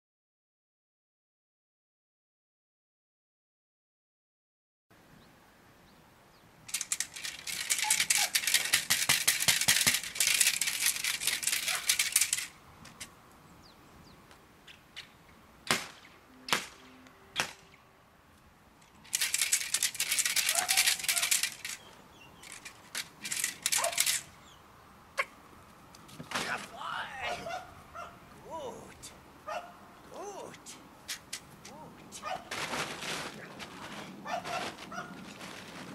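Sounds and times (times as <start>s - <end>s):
sharp cracks: 6.7s - 13.1s, 14.7s - 17.8s, 18.8s - 24.4s, 25.9s - 27.2s, 31.0s - 35.9s
plastic tarp rattling crackle: 32.5s - 35.9s.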